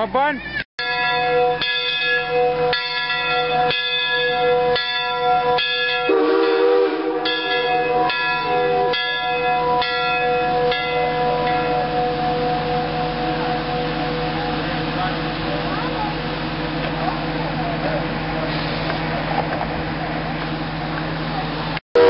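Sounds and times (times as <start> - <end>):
steam locomotive bell ringing: 0.8 - 22.0
low wavering sound: 7.2 - 21.4.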